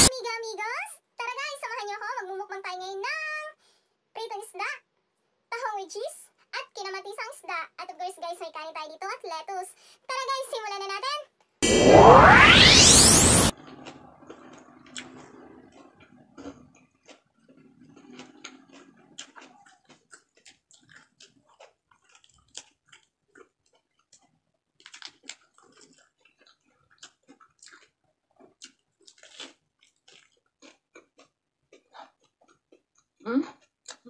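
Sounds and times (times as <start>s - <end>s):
person chewing crunchy food: 13.8s - 34.0s
wet mouth clicks: 16.1s - 34.0s.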